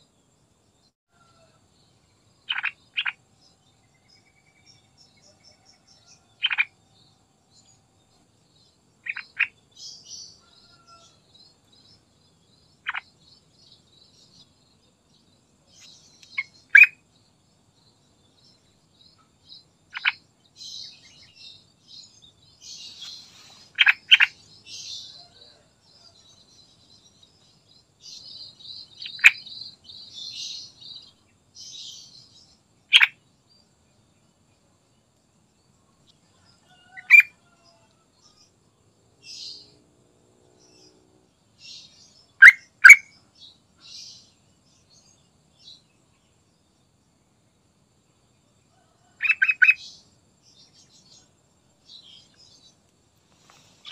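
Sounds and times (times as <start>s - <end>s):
bird chattering warbles: 2.5s - 3.2s, 6.4s - 6.8s, 9.0s - 9.6s, 16.3s - 17.0s, 19.9s - 20.2s, 23.0s - 24.4s, 32.9s - 33.1s.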